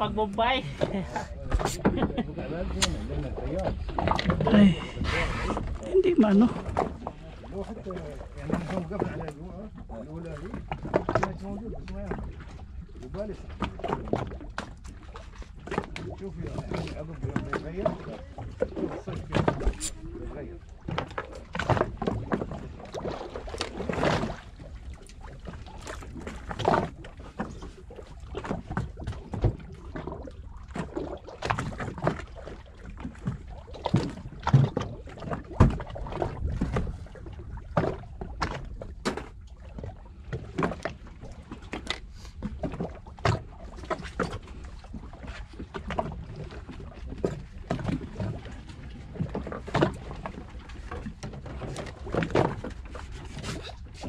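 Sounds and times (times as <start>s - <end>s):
water knocking against boat hull: 0.0s - 4.6s, 20.8s - 54.0s
low rumble: 0.0s - 7.6s, 19.2s - 21.5s.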